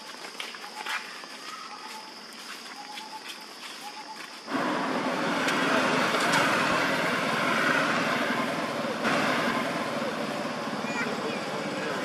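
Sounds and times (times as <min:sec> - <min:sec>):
motorbikes passing: 0:04.5 - 0:12.0.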